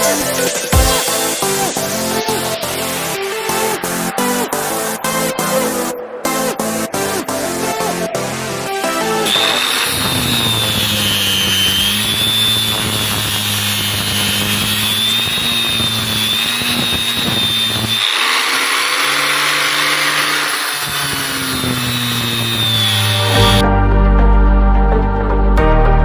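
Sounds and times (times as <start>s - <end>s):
angle grinder grinding metal: 0.0s - 5.9s, 8.8s - 23.6s.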